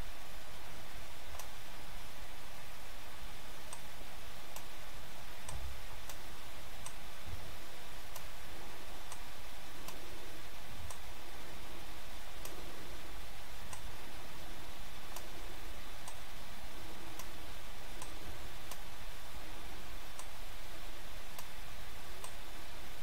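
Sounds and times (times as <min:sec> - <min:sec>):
computer mouse clicking: 0:01.3 - 0:01.6, 0:03.7 - 0:03.9, 0:05.4 - 0:06.2, 0:08.1 - 0:08.3, 0:09.1 - 0:10.0, 0:13.7 - 0:13.9, 0:15.1 - 0:15.4, 0:16.0 - 0:16.2, 0:17.1 - 0:17.4, 0:20.1 - 0:20.4, 0:22.2 - 0:22.4.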